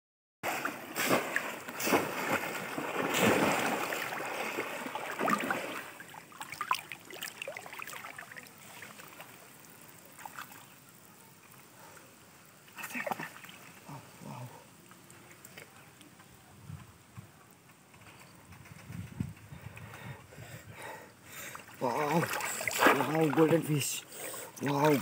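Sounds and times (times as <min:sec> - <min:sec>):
water splashing: 0:00.4 - 0:12.0, 0:21.5 - 0:25.0
water trickling: 0:02.2 - 0:16.4, 0:21.6 - 0:25.0.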